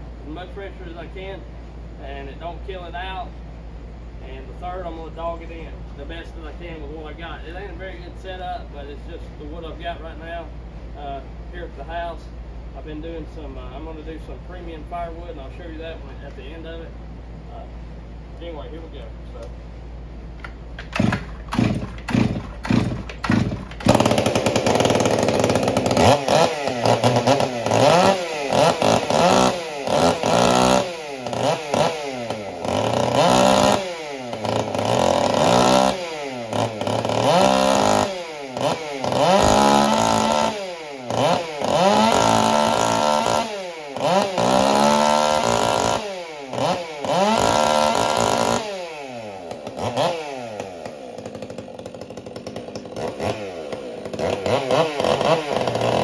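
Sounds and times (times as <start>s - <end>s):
chainsaw engine revving: 20.8s - 56.0s.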